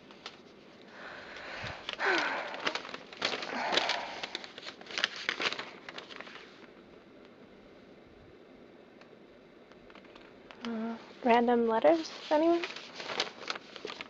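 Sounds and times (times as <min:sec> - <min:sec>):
paper rustling and crinkling: 0:00.0 - 0:06.8, 0:11.2 - 0:14.0.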